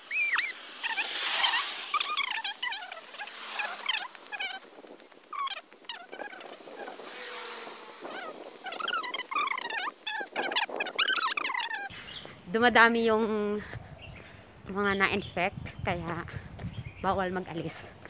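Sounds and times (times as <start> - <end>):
faint road traffic hiss: 0.0 - 8.7
small birds chirping: 0.0 - 18.0.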